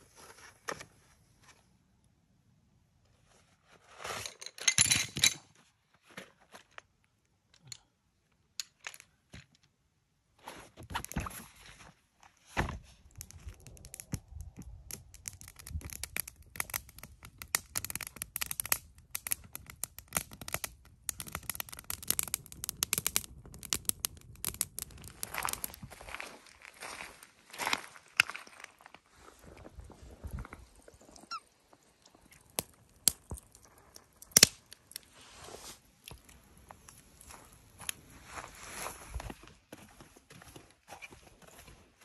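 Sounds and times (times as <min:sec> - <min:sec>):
campfire crackling and popping: 0:13.0 - 0:27.3, 0:29.6 - 0:35.1, 0:36.0 - 0:38.1
rush of flames: 0:13.1 - 0:26.1.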